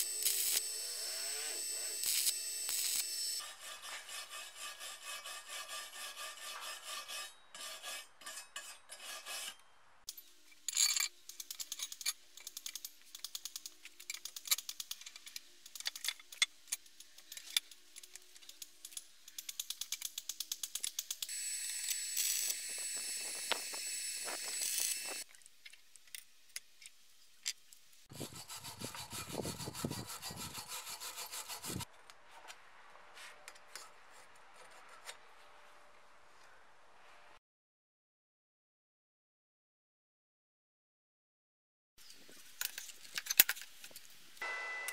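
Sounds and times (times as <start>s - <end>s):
welding hiss: 0.0s - 3.4s, 21.3s - 25.2s.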